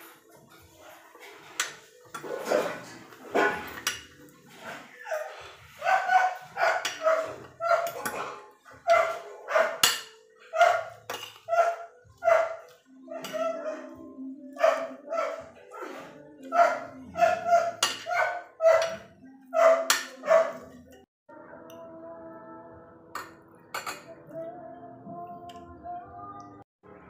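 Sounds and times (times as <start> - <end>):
dog barking: 5.0 - 20.9.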